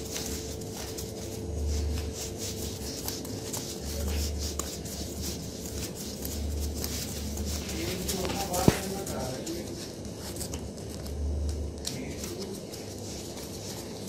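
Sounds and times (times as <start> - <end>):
pen scratching on paper: 0.0 - 11.1.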